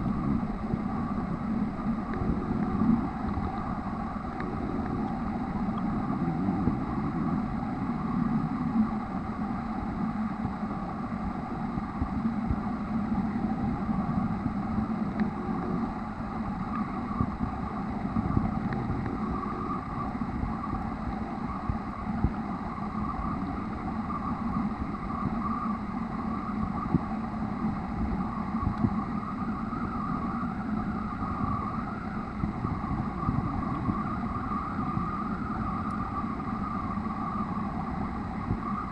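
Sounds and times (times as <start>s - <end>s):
muffled underwater drone: 0.0s - 38.9s.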